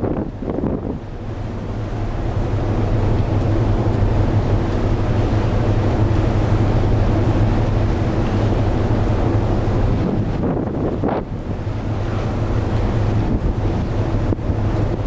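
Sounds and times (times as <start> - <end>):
ship engine drone: 0.0 - 15.0
wind rushing over microphone: 0.0 - 15.0.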